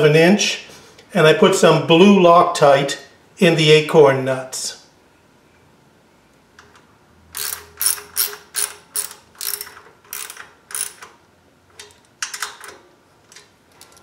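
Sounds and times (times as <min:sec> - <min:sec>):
socket ratchet clicking: 0:07.4 - 0:11.1.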